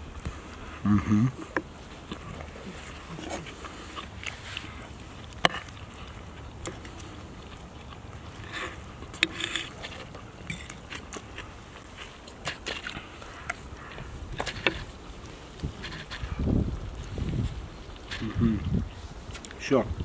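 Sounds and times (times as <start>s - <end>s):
steady low rumble: 13.0s - 20.0s.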